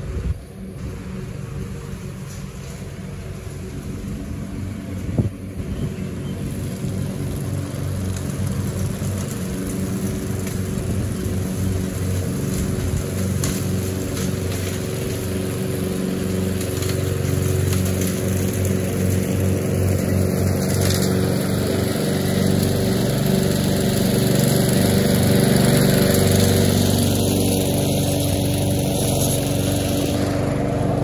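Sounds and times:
lawn mower engine running: 0.0s - 31.0s.

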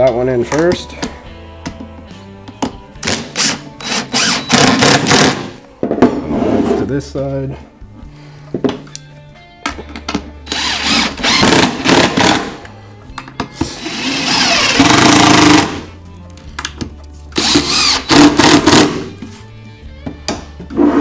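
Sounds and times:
cordless driver driving screws: 17.4s - 18.9s.

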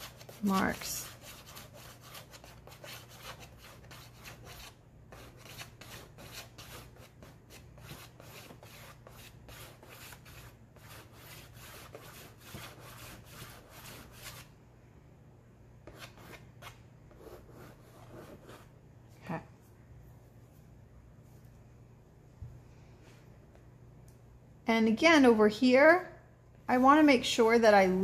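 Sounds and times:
chalk scratching on board: 0.0s - 14.5s, 15.9s - 18.7s.

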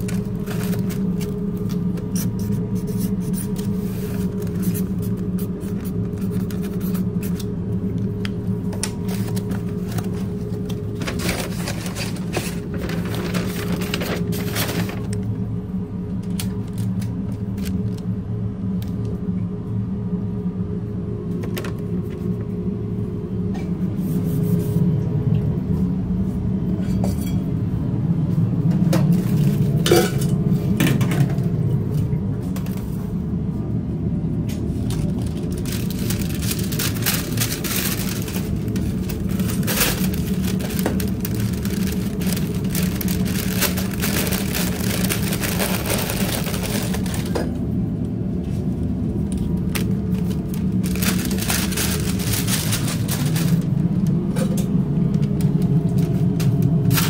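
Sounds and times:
low kitchen hum: 0.0s - 57.0s
clatter of bowls and pans: 29.8s - 31.4s.

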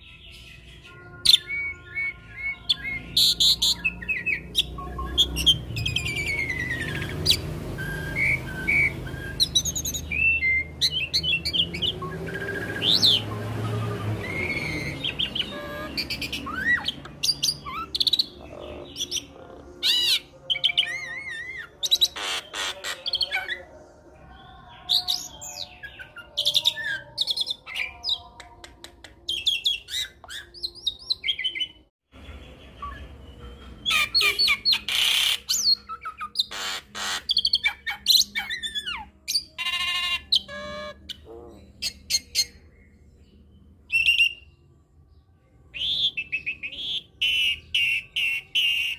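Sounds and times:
bird singing whistles and chirps: 0.0s - 23.6s, 43.9s - 44.6s, 45.7s - 48.9s.

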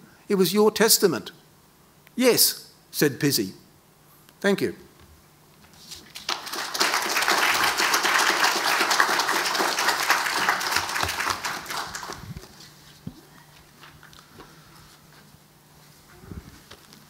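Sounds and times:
audience applauding: 6.2s - 12.4s.

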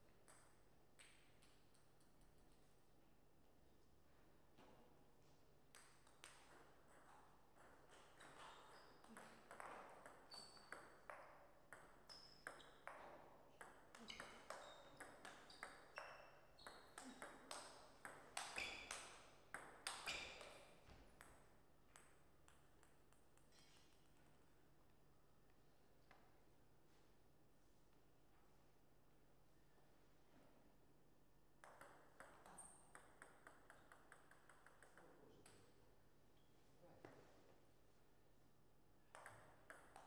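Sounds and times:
table tennis ball hitting bats and table: 0.2s - 2.0s, 5.7s - 24.0s, 31.6s - 35.8s, 39.1s - 40.0s.

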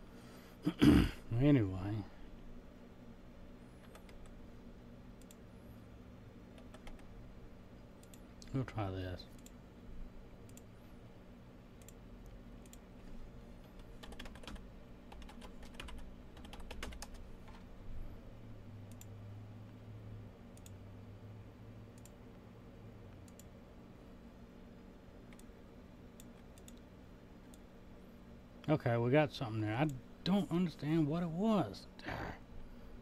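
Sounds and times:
faint low hum: 0.0s - 33.0s
computer keyboard typing: 3.8s - 4.4s, 6.6s - 7.1s, 13.6s - 17.6s.

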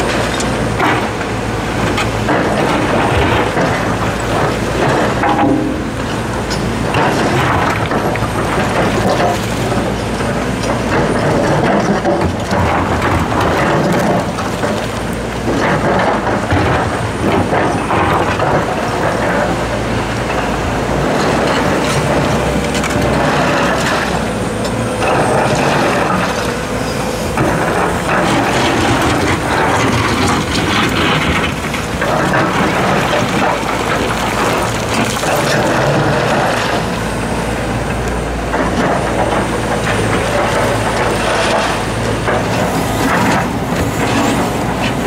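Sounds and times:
excavator diesel engine: 0.0s - 45.0s
rocks scraping and clattering: 20.2s - 37.2s, 38.5s - 45.0s.

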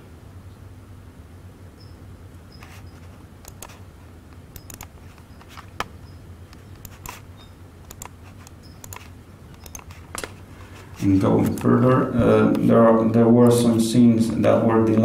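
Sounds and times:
steady low hum: 0.0s - 15.0s
laptop keys and mouse clicks: 2.5s - 3.8s, 4.4s - 10.4s.

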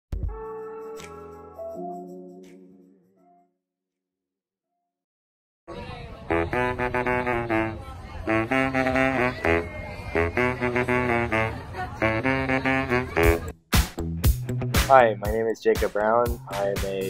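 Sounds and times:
baritone saxophone runs: 6.3s - 13.5s.

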